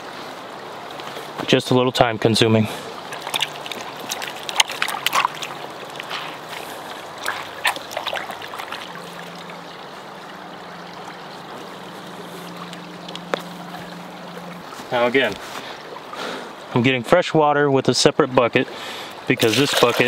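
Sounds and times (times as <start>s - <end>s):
water splashing and sloshing: 0.0s - 17.2s, 17.8s - 20.0s
garment wrung out over bucket: 3.1s - 9.0s, 19.4s - 20.0s.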